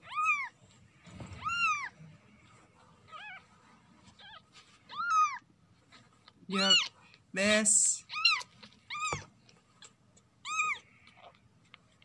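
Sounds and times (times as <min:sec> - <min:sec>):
kitten mewing: 0:06.5 - 0:07.0, 0:08.0 - 0:11.4.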